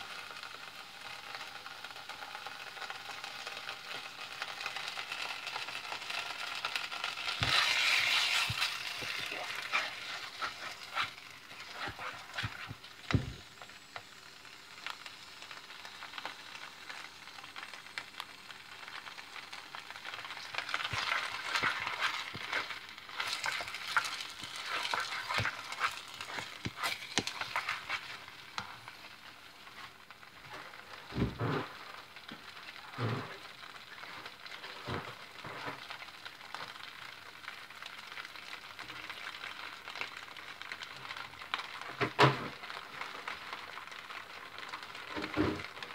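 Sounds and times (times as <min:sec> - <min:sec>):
food sizzling: 0:00.0 - 0:45.9
spatula scraping a pot: 0:06.6 - 0:12.8, 0:20.5 - 0:28.8.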